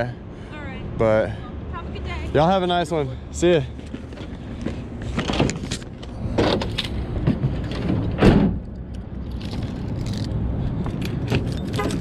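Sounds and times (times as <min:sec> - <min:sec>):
loud thump: 0:07.2 - 0:08.6.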